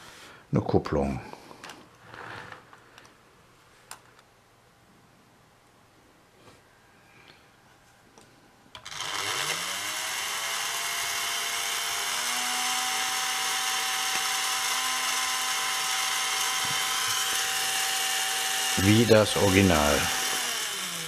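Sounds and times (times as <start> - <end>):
small electric motor whine: 8.8 - 21.0.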